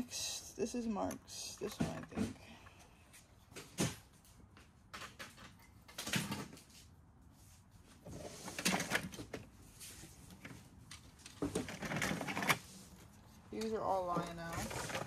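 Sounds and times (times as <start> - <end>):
toy train cars knocking and rattling: 1.2 - 2.4, 10.9 - 12.6, 13.6 - 15.0.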